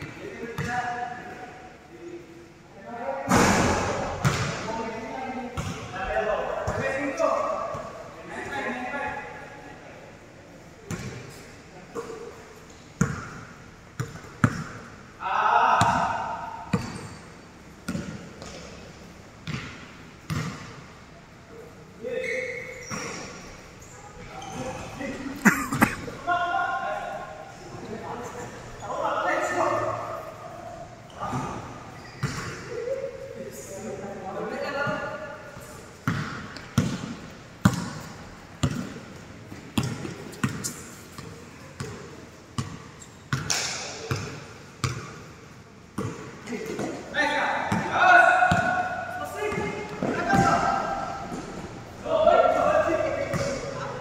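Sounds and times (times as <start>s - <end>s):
basketball bouncing on court: 0.6s - 0.8s, 3.3s - 4.6s, 5.6s - 5.9s, 10.9s - 11.2s, 13.0s - 13.4s, 14.0s - 14.9s, 15.8s - 17.2s, 17.8s - 18.8s, 19.4s - 20.8s, 31.2s - 32.6s, 36.0s - 45.2s, 46.0s - 46.9s, 47.7s - 51.6s, 53.2s - 53.7s.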